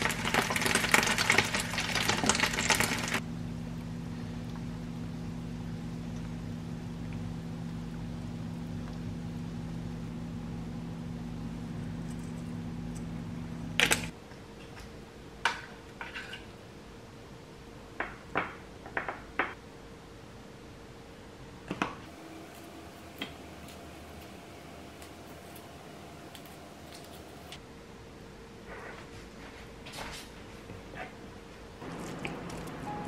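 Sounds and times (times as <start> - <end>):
kitchen appliance motor humming: 31.8 - 33.0.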